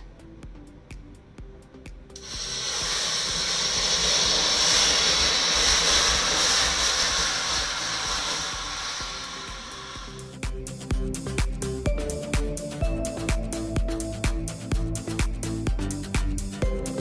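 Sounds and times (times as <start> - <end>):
loud hiss of sparks and flame: 2.2 - 10.4.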